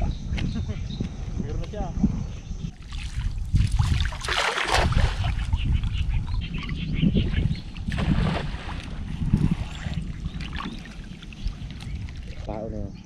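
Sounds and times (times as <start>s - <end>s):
wind on microphone: 0.0s - 13.0s
water sloshing and splashing: 2.8s - 6.8s, 7.4s - 12.5s.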